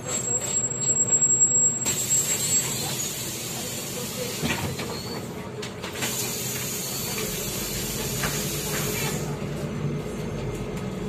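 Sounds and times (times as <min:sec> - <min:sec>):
bus engine humming: 0:00.0 - 0:11.0.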